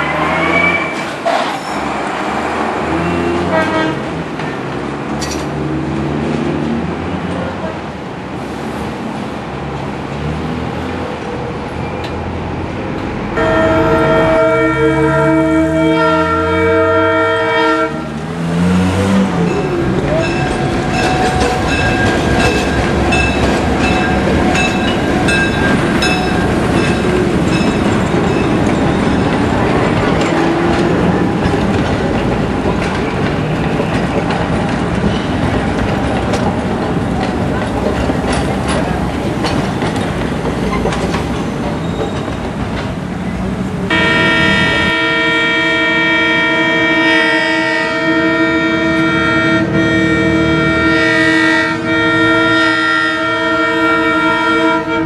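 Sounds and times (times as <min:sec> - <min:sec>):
steel wheels rumbling on rails: 0:00.0 - 0:55.0
locomotive air horn: 0:02.9 - 0:04.1, 0:13.4 - 0:18.2, 0:43.9 - 0:55.0.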